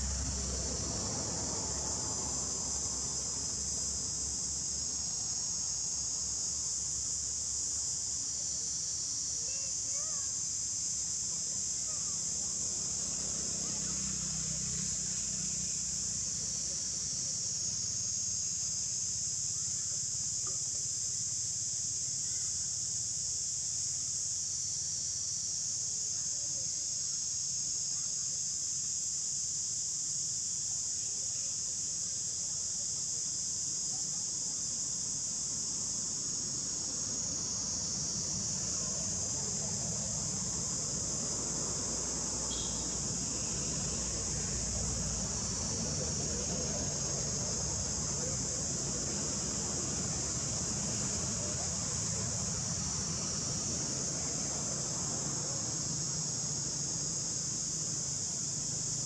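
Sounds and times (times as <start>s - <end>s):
insect chorus droning: 0.0s - 59.0s.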